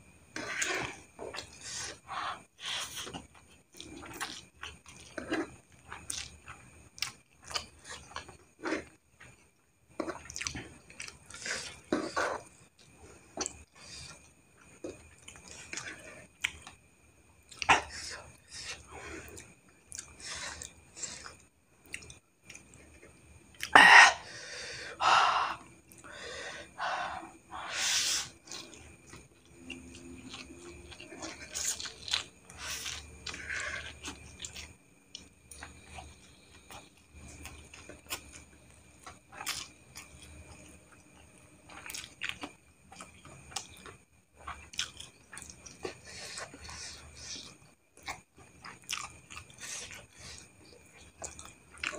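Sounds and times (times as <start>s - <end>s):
slurping noodles: 0.4s - 3.2s, 10.0s - 12.5s
wet chewing and mouth smacks: 2.7s - 9.4s, 10.0s - 12.2s, 28.3s - 51.9s.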